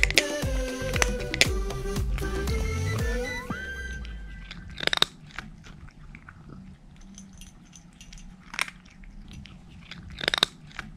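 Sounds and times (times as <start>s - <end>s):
cat crunching dry kibble: 4.4s - 10.9s.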